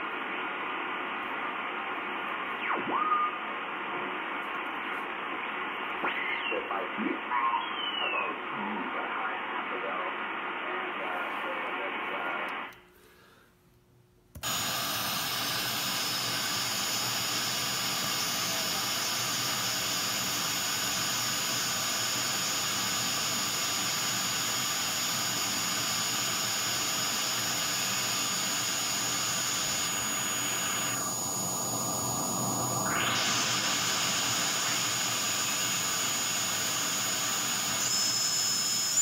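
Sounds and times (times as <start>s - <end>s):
band-limited receiver audio: 0.0s - 12.8s, 14.3s - 39.0s
radio static hiss: 0.0s - 12.8s, 14.4s - 39.0s
faint high whistle: 37.7s - 39.0s.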